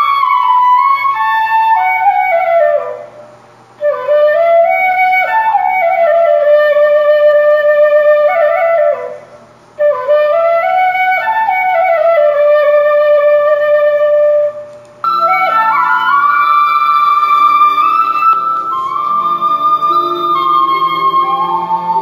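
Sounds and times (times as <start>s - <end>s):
single melody line music: 15.1s - 22.0s.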